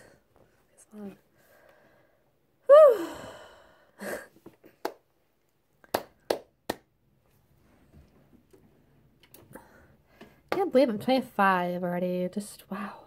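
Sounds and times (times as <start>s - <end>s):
woman sighing loudly: 2.6s - 4.3s.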